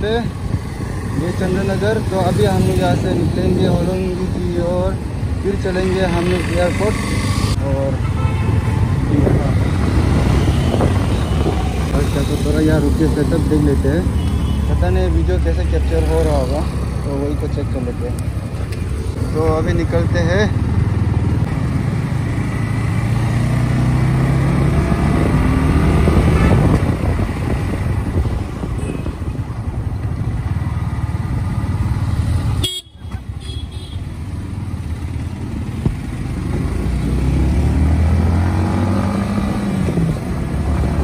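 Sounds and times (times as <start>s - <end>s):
motorcycle engine accelerating: 16.3s - 32.6s
vehicle horn tooting: 32.6s - 34.1s.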